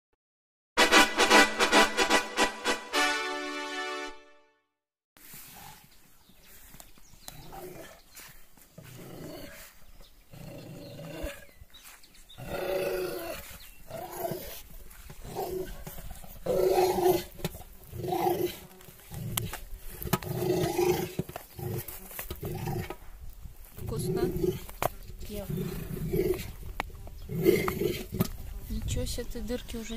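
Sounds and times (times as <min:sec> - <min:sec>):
dog growling: 0:12.4 - 0:22.9, 0:25.4 - 0:26.6.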